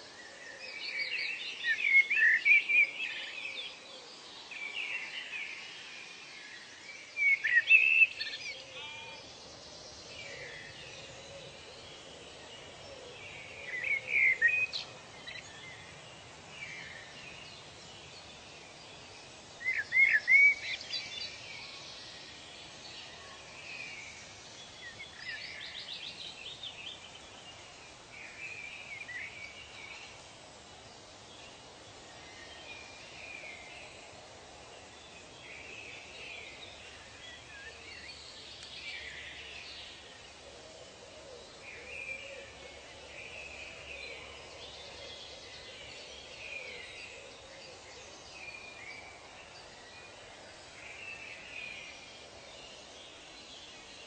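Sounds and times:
steady hiss: 0:00.0 - 0:54.0
birds chirping and trilling: 0:06.6 - 0:30.2.

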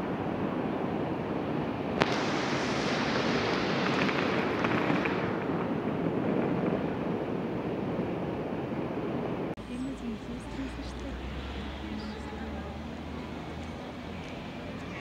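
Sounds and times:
water rushing over a weir: 0:00.0 - 0:08.9.

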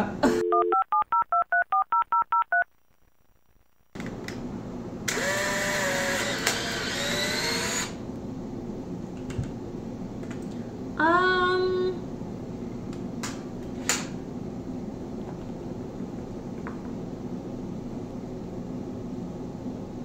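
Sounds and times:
telephone keypad beeps: 0:00.4 - 0:02.6
camera motor whirring: 0:05.1 - 0:08.0.

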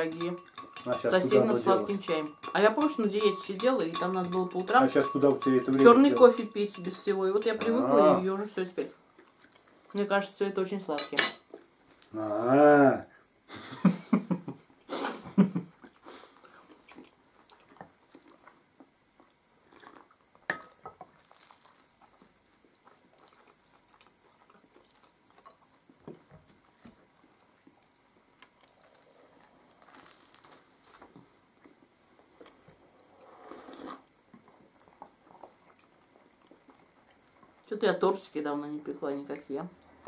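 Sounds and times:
cups and plates clicking: 0:00.0 - 0:08.0
chewing flaky pastry: 0:09.0 - 0:10.0, 0:15.8 - 0:37.8
person laughing: 0:13.5 - 0:15.7
sip of tea: 0:33.1 - 0:34.1.

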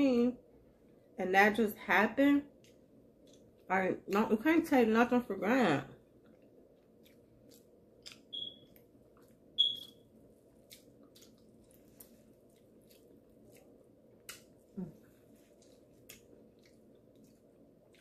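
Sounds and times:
short high beeps: 0:08.3 - 0:08.6, 0:09.6 - 0:09.9.

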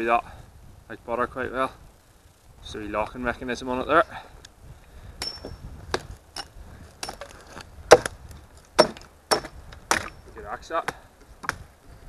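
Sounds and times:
metallic ring: 0:05.2 - 0:05.6
axe chopping into a log: 0:07.9 - 0:08.2, 0:08.8 - 0:10.2.

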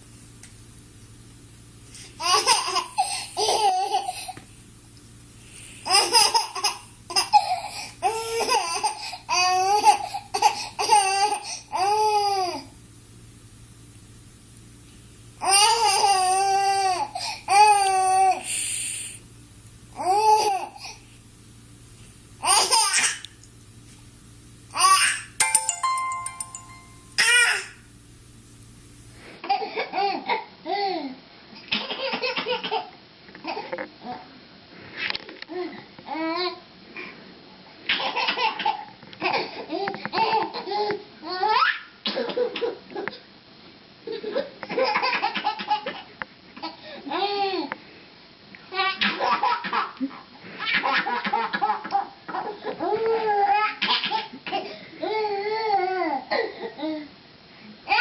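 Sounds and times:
baby giggling: 0:02.2 - 0:04.3, 0:05.8 - 0:11.4.

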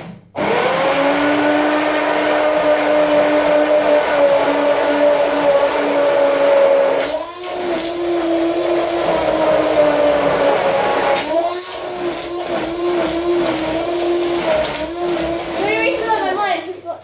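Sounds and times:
stick blender motor whine: 0:00.4 - 0:16.8.

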